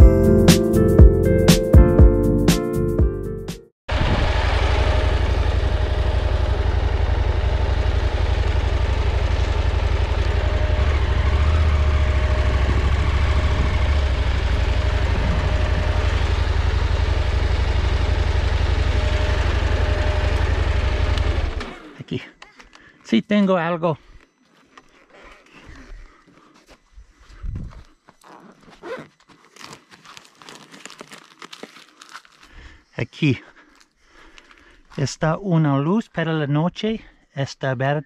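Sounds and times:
motorcycle engine running: 0:03.9 - 0:22.0
road noise: 0:03.9 - 0:22.0
wind rush: 0:14.8 - 0:16.2.

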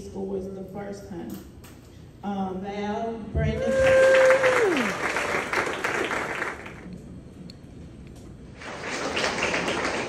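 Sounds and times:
audience applauding and cheering: 0:03.6 - 0:06.9, 0:08.7 - 0:10.0.

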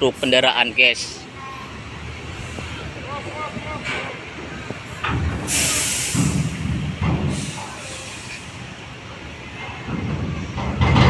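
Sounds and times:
diesel engine running: 0:00.0 - 0:11.0
truck air brakes hissing: 0:03.8 - 0:09.5.

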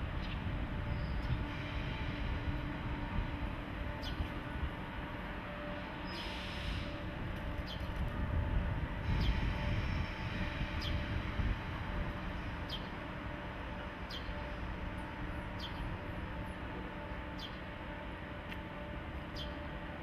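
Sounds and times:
electric locomotive hum: 0:00.0 - 0:20.0.

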